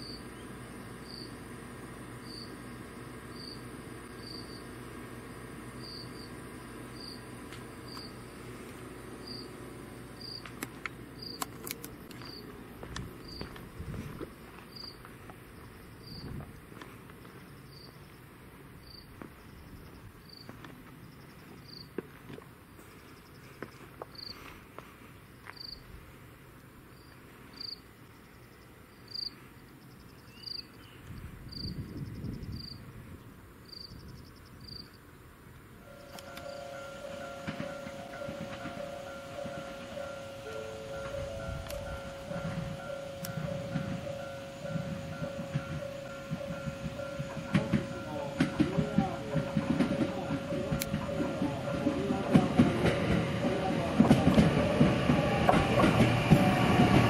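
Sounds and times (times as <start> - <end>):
faint insect chirping: 0.0 - 1.4, 2.2 - 8.6, 9.2 - 9.6, 10.2 - 10.5, 14.3 - 16.4, 17.2 - 22.0, 22.9 - 24.5, 25.2 - 25.9, 26.8 - 33.0, 33.6 - 35.2.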